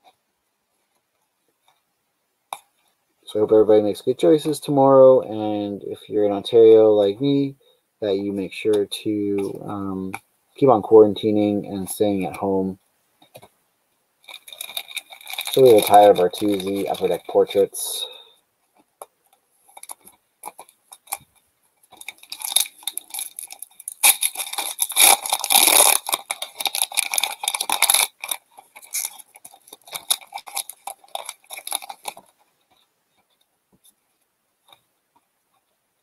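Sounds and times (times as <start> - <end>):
foil wrapper crinkling and tearing: 14.2 - 18.0, 19.7 - 21.2, 21.8 - 32.8.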